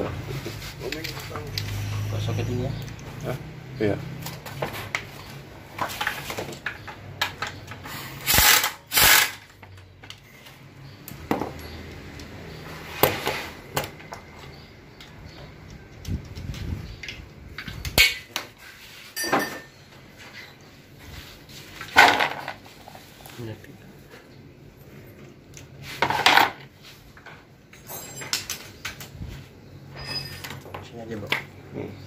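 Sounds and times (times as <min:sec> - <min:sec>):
metal tools clinking and scraping: 0:16.2 - 0:23.5, 0:25.9 - 0:31.5.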